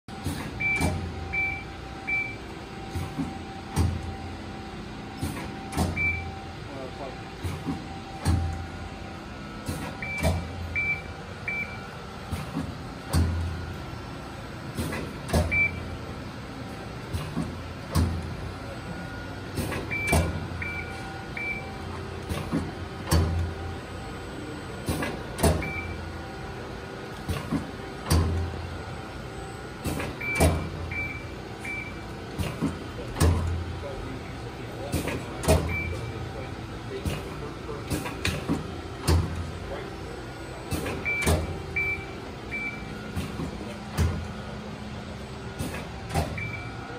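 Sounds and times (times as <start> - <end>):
hydraulic pump motor humming: 0.1 - 46.9
machine thumps: 12.3 - 13.6, 37.9 - 39.5, 43.1 - 44.4.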